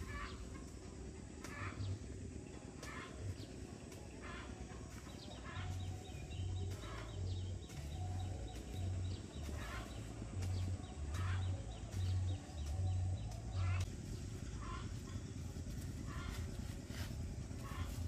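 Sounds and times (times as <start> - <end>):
birds chirping: 0.0 - 18.0
hoe scraping dry dirt: 4.2 - 18.0.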